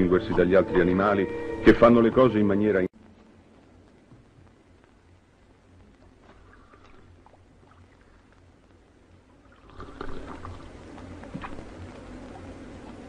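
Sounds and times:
water sloshing and trickling: 9.4 - 12.4.

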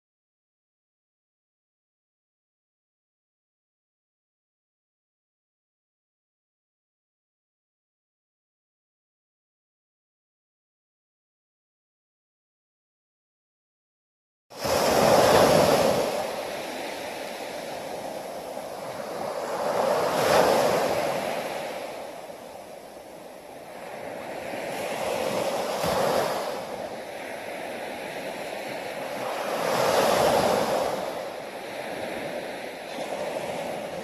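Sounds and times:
small waves breaking on beach: 14.5 - 34.0.

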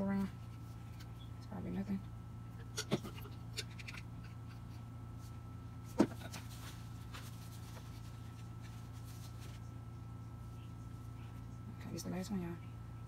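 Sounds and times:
steady low hum: 0.0 - 13.0
paper towel rubbing and rustling: 6.4 - 9.7.

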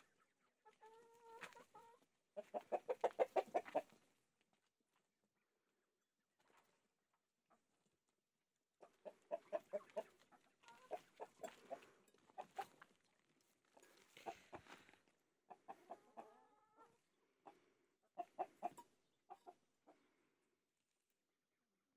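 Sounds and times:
hens clucking: 0.0 - 4.2, 8.7 - 13.0, 13.8 - 20.2.

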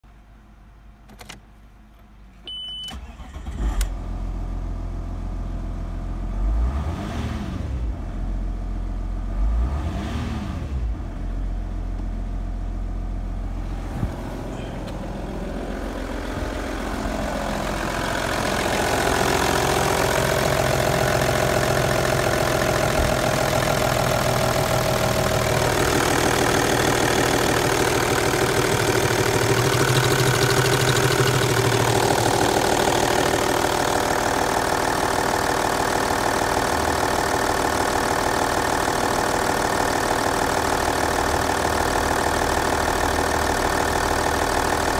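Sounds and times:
short beep: 2.4 - 3.1
diesel engine idling: 11.3 - 44.9.

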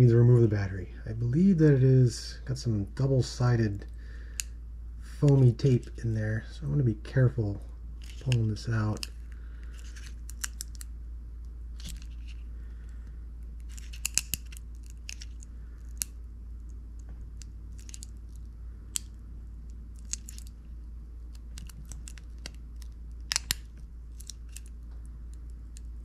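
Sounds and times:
small plastic clicks and crinkles: 8.0 - 10.9, 11.8 - 12.4, 13.6 - 20.6, 21.3 - 26.0.

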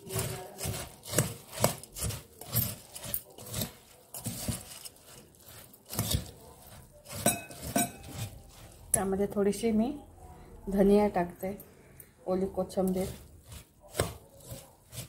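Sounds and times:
spoon scraping a steel bowl: 0.0 - 9.2, 12.8 - 15.0.

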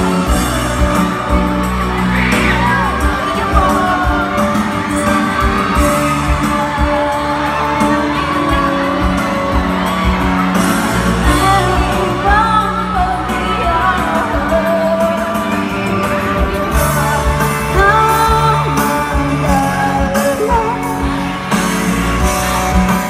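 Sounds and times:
backing music over loudspeakers: 0.0 - 23.0
woman singing into microphone: 2.3 - 9.0, 11.2 - 21.3.

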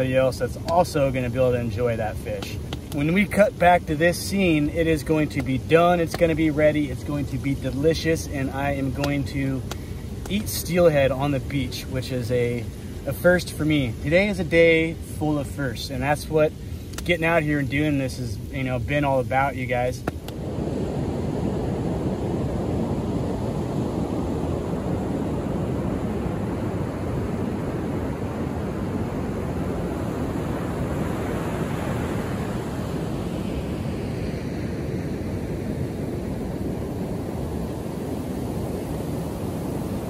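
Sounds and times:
wind buffeting microphone: 0.0 - 40.0
surf breaking on beach: 17.0 - 40.0.

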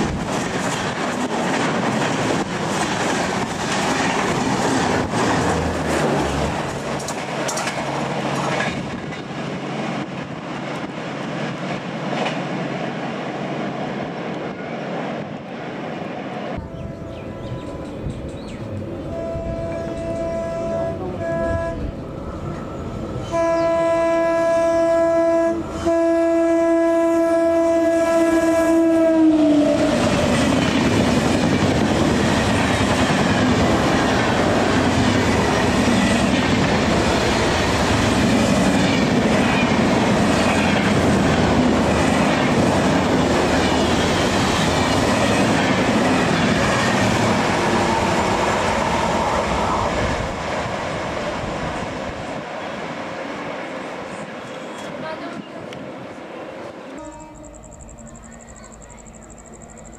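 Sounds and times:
train coaches clickety-clack: 0.0 - 26.6, 27.5 - 59.9
train horn blasts: 19.1 - 22.0, 23.2 - 30.1, 56.9 - 58.2.

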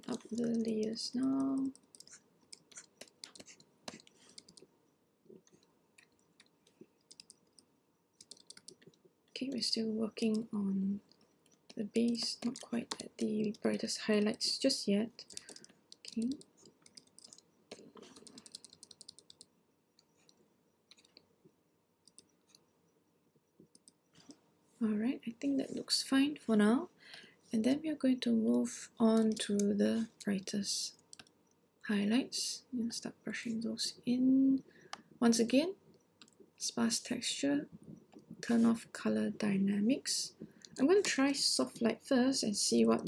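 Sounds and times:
computer keys clicking: 0.0 - 4.7, 5.4 - 14.6, 15.2 - 21.2, 22.0 - 22.6, 23.6 - 24.0, 29.1 - 31.6.

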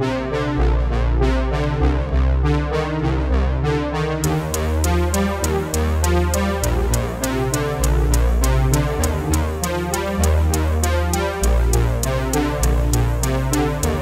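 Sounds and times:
electronic hip-hop instrumental: 4.2 - 14.0.

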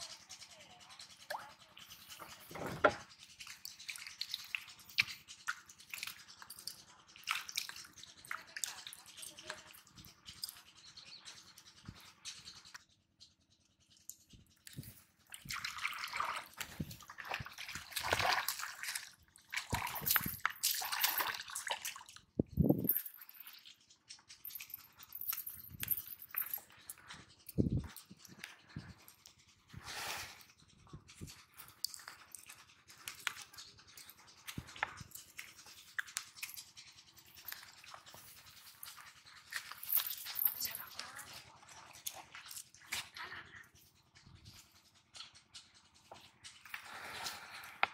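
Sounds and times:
fish splashing in water: 15.5 - 22.1
sharp ticks: 30.4 - 46.9.

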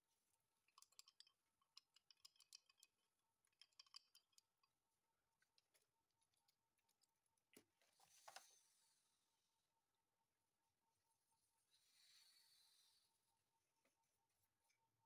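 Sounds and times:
faint small clicks and ticks: 0.2 - 8.6.

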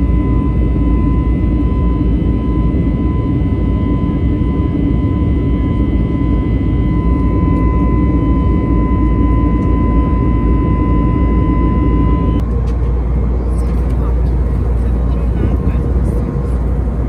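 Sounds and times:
thin high whine: 0.0 - 12.4
jet engine roar in cabin: 0.0 - 17.0.

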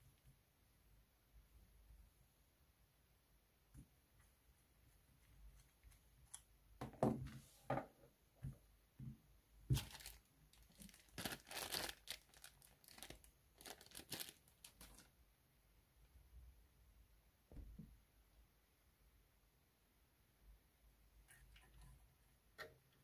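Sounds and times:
plastic bag crinkling: 9.7 - 15.2.

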